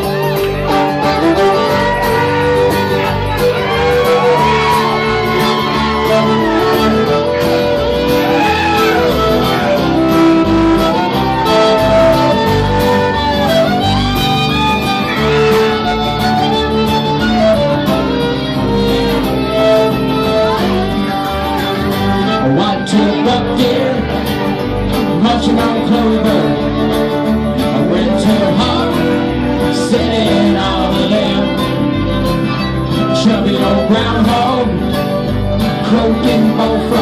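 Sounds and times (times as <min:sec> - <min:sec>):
strummed acoustic guitars: 0:00.0 - 0:37.0
bowed fiddle sliding notes: 0:00.4 - 0:23.3.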